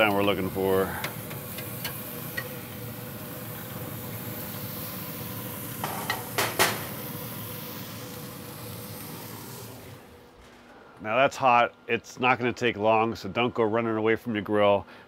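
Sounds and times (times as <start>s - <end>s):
burger patties sizzling on grill: 0.0s - 10.2s.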